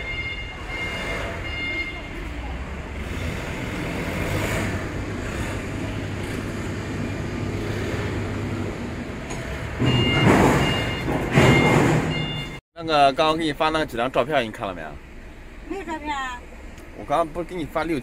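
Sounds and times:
reversing beeper: 0.0s - 2.2s, 9.8s - 12.6s.

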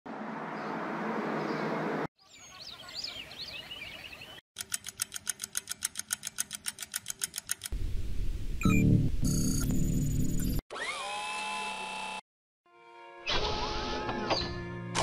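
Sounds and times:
birds chirping: 0.5s - 4.4s
mechanical watch ticking: 4.6s - 7.8s.

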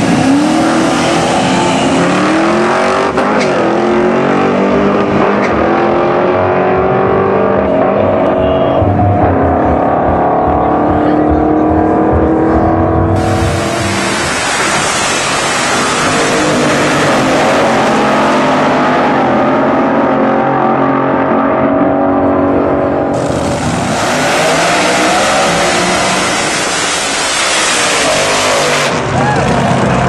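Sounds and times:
drag racing engines at full throttle: 0.0s - 30.0s.

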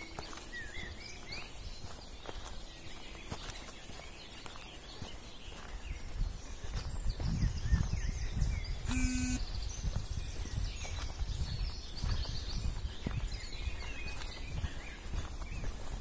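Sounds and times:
small birds singing and chirping: 0.0s - 16.0s
short buzzy tone: 8.9s - 9.4s.

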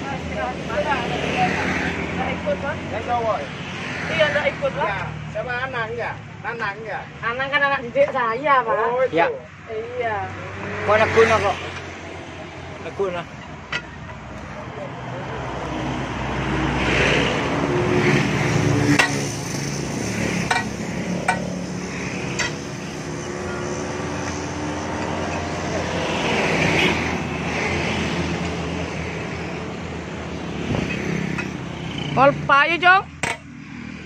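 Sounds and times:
road traffic: 0.0s - 34.0s
metal tools clinking: 22.3s - 22.6s.

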